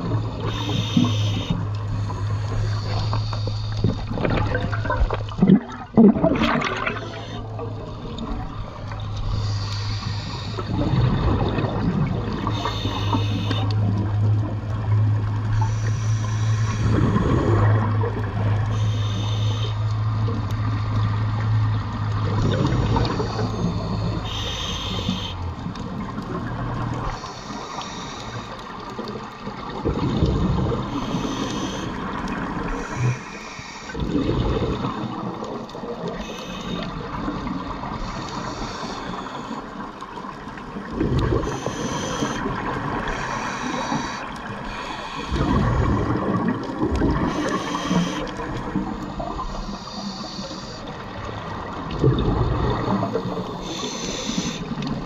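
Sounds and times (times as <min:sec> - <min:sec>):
exhaled bubbles underwater: 0:00.0 - 0:55.0
water noise: 0:00.0 - 0:55.0
regulator breath hissing: 0:00.4 - 0:03.9, 0:09.3 - 0:10.8, 0:12.5 - 0:13.6, 0:15.6 - 0:17.1, 0:18.7 - 0:19.8, 0:23.1 - 0:25.4, 0:27.0 - 0:28.6, 0:30.9 - 0:32.0, 0:32.8 - 0:34.0, 0:36.2 - 0:37.0, 0:37.9 - 0:39.7, 0:41.4 - 0:42.5, 0:43.1 - 0:45.5, 0:47.3 - 0:48.3, 0:49.4 - 0:50.9, 0:53.4 - 0:54.8.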